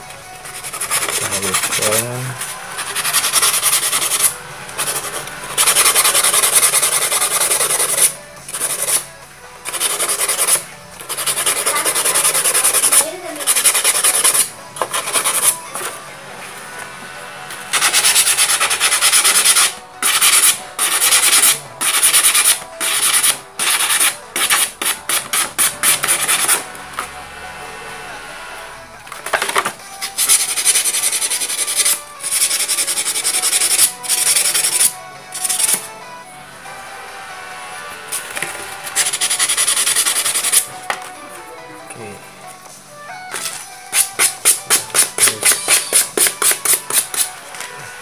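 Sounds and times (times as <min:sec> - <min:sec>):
sandpaper rasping: 0:00.4 - 0:16.0, 0:17.7 - 0:26.7, 0:30.0 - 0:35.9, 0:38.8 - 0:40.7, 0:43.4 - 0:47.4.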